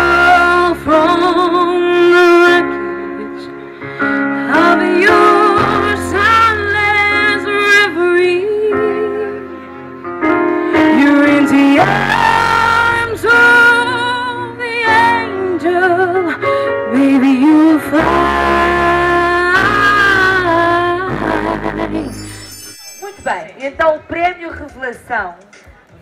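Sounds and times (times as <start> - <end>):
woman singing into microphone: 0.0 - 3.6, 4.4 - 9.4, 10.8 - 22.2
instrumental backing music: 0.0 - 26.0.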